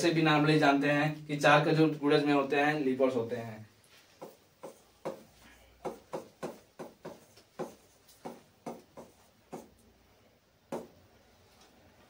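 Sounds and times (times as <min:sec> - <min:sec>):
pen writing strokes: 0:04.2 - 0:05.2, 0:05.9 - 0:09.8.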